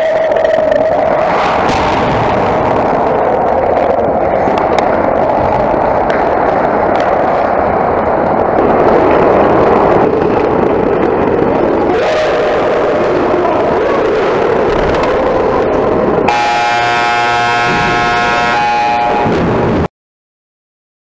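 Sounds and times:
constant hum: 0.0 - 19.9
loud rushing noise: 0.0 - 19.9.

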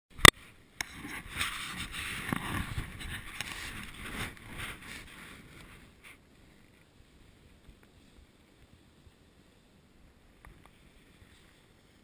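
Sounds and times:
snowboard scraping over snow: 0.9 - 9.8.

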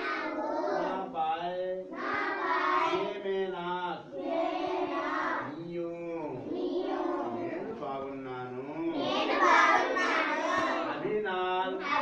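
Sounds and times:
children chanting together: 0.0 - 1.1, 1.9 - 3.3, 4.1 - 5.6, 6.4 - 7.8, 8.9 - 11.0, 11.8 - 12.0.

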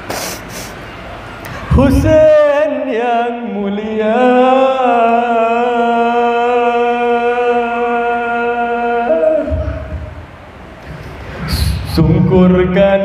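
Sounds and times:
man chanting into a microphone: 1.7 - 10.2, 10.9 - 13.0.

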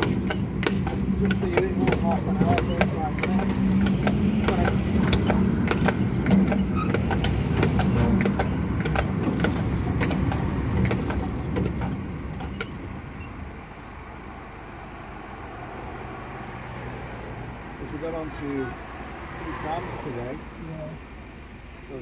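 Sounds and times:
sharp clicks and knocks: 0.0 - 12.9
tram rumbling on rails: 0.0 - 22.0.

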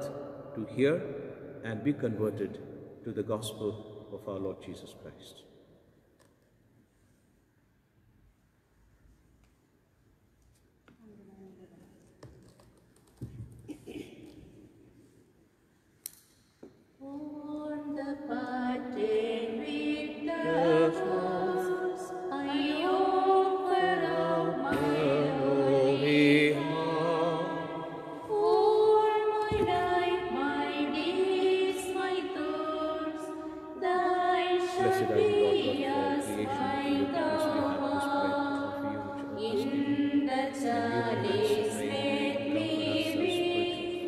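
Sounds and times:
hymn singing: 17.0 - 44.0.

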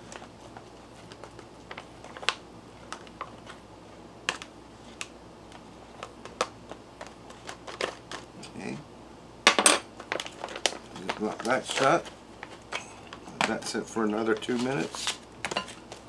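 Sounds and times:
pouch crinkling: 10.0 - 13.3.

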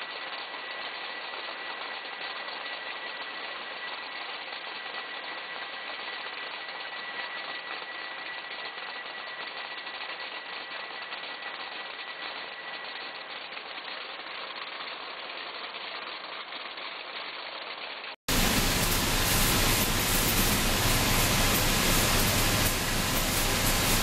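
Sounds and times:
sorting machine and conveyor running: 17.0 - 24.0
high-pitched machine whine: 18.3 - 24.0.

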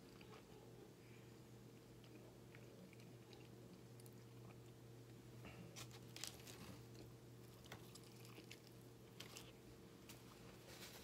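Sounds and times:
chewing: 1.8 - 4.8, 5.8 - 9.6.

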